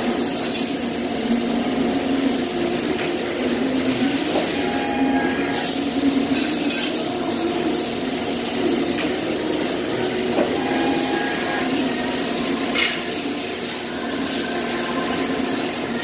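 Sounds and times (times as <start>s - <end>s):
press brake machine hum: 0.6s - 16.0s.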